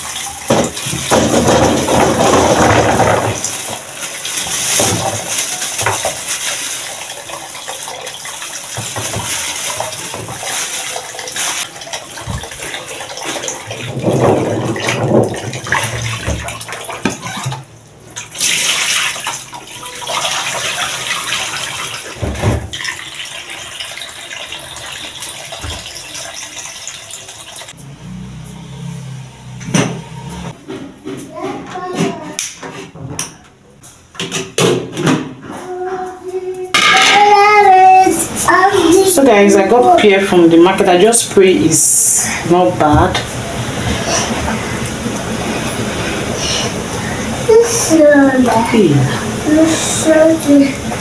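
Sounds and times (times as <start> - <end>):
water splashing over fruits: 0.0 - 17.6, 18.2 - 29.1, 37.6 - 51.0
tap running into basin: 0.0 - 27.8.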